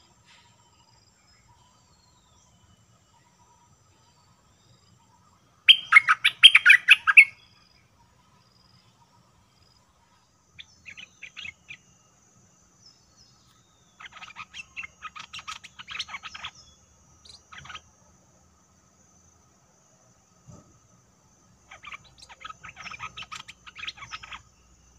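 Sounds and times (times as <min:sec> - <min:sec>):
bird singing bubbling notes: 0:05.7 - 0:07.4.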